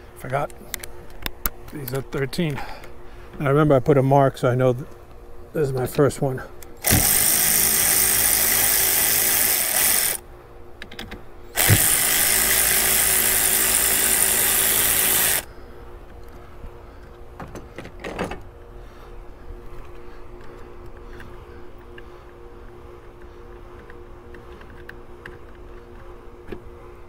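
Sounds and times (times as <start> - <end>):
power ratchet spinning nuts: 6.8 - 10.2, 11.5 - 15.5.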